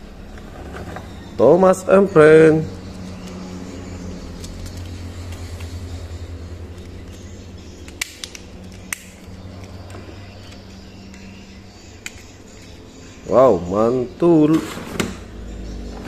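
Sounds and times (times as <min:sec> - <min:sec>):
steady low hum: 0:00.0 - 0:16.0
plastic toy parts clicking: 0:06.7 - 0:11.3.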